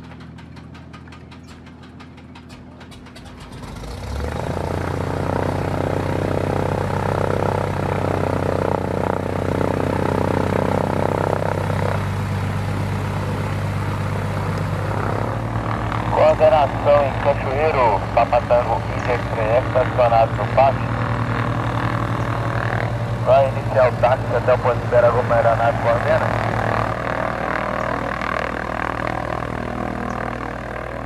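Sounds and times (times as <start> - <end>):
aircraft piston engine running: 0.0 - 31.0.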